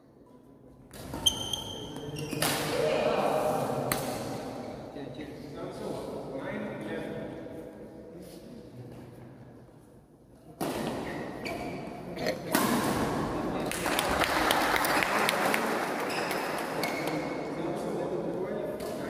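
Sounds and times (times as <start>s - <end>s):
shoes squeaking on court: 1.0s - 2.4s, 10.9s - 12.0s.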